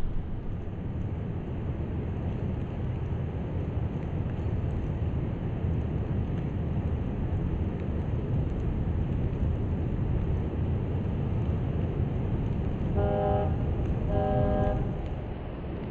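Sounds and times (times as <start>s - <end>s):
wind: 0.0s - 15.9s
vehicle horn: 13.0s - 15.2s.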